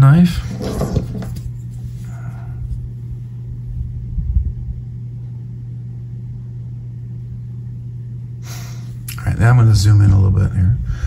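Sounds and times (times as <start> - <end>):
steady low hum: 0.0 - 11.0
low rumble: 2.2 - 6.6.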